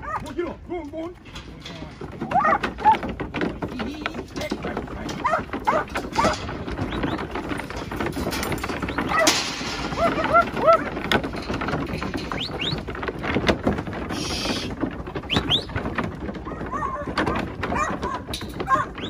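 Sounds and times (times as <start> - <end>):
hooves knocking against boards: 0.0 - 19.0
bird calls: 12.3 - 12.9, 14.2 - 15.8.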